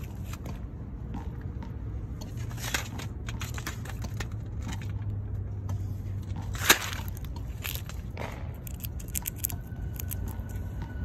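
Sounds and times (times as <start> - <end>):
low steady hum: 0.0 - 11.0
squirrel cracking peanut shells: 6.9 - 10.6.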